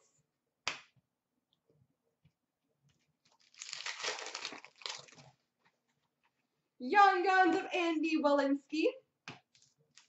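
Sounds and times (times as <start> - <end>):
foil wrapper crinkling: 3.2 - 5.4.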